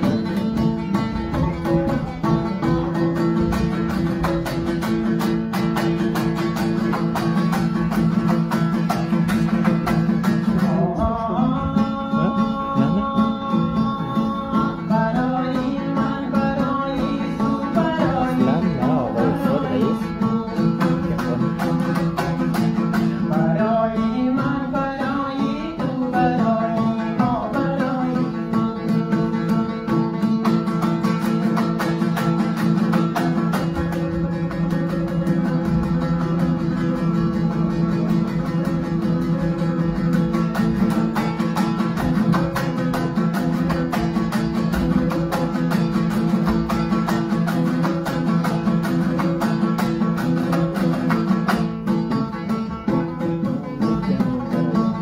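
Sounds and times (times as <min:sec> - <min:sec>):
lute strummed in driving rhythm: 0:00.0 - 0:55.0
man singing: 0:10.2 - 0:30.4.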